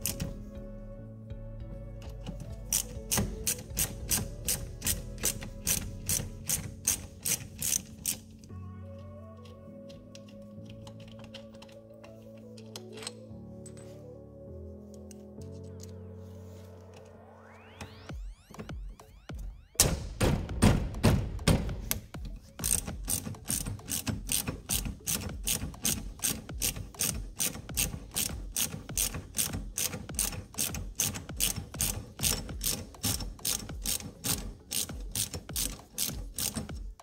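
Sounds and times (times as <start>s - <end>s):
hand ratchet clicking: 0.0s - 0.4s, 2.2s - 8.5s, 9.4s - 13.2s, 21.4s - 37.0s
knocks: 18.1s - 22.4s.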